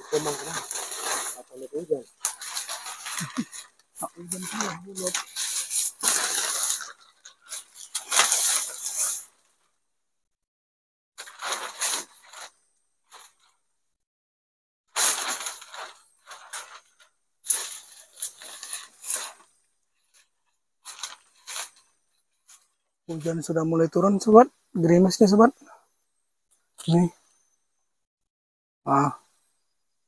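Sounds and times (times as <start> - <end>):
plastic tarpaulin crinkling: 0.0 - 9.4, 11.2 - 12.5, 15.0 - 23.5.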